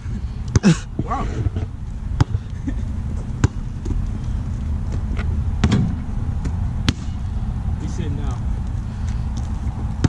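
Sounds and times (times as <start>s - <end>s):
low rumble: 0.0s - 10.0s
basketball bouncing: 2.2s - 2.5s, 3.3s - 4.0s.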